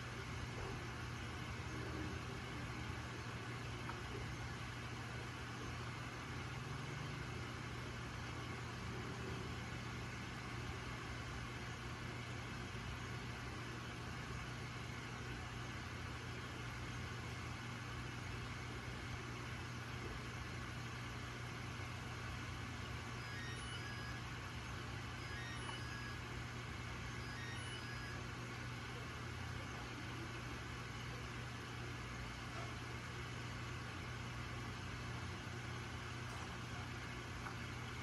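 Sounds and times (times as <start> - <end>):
aquarium pump humming and hissing: 0.0 - 38.0
faint short high tones: 27.2 - 28.2.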